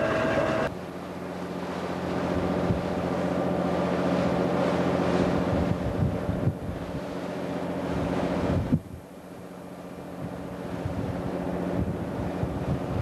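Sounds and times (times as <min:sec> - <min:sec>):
boat diesel engine droning: 0:00.0 - 0:12.8
sea rushing along hull: 0:00.0 - 0:13.0
wind buffeting microphone: 0:05.0 - 0:07.1, 0:07.9 - 0:09.1, 0:10.1 - 0:13.0.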